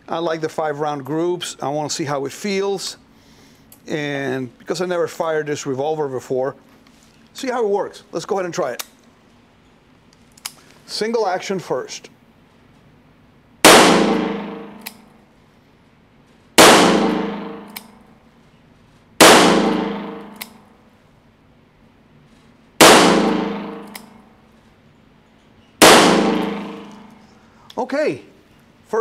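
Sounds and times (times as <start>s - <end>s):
revolver shots echoing indoors: 13.6s - 15.3s, 16.6s - 18.2s, 19.2s - 20.9s, 22.8s - 24.6s, 25.7s - 27.4s.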